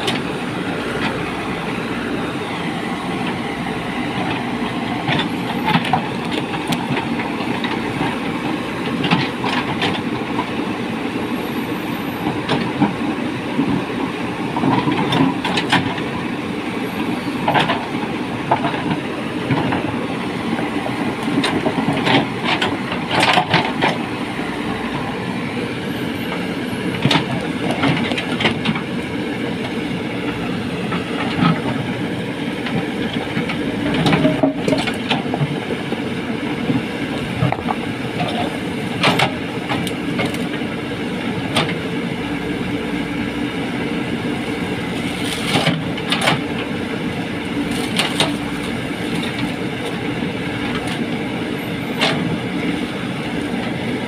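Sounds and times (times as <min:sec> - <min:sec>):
diesel engine running under load: 0:00.0 - 0:54.0
clanks and knocks from machinery: 0:21.4 - 0:24.0, 0:32.6 - 0:35.6, 0:37.4 - 0:40.5, 0:45.4 - 0:46.5, 0:47.8 - 0:48.4.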